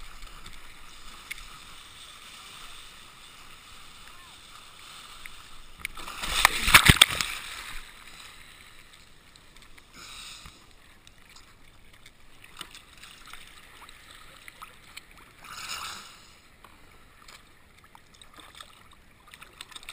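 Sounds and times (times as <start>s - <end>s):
water splashing against a board: 4.0s - 8.4s.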